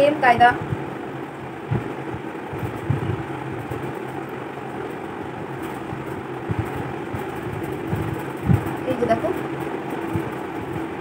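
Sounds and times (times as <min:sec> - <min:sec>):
mechanical hum: 0:00.0 - 0:11.0
soft low thumps: 0:00.3 - 0:01.0, 0:01.6 - 0:04.0, 0:05.8 - 0:09.2.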